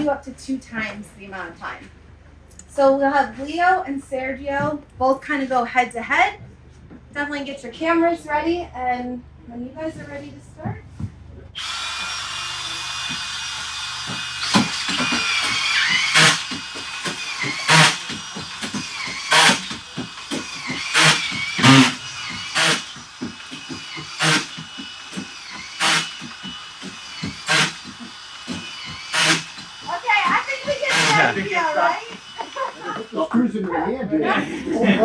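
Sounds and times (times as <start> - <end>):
cordless screwdriver motor whine: 11.6 - 33.2
sharp crack of screw driven: 13.0 - 29.7.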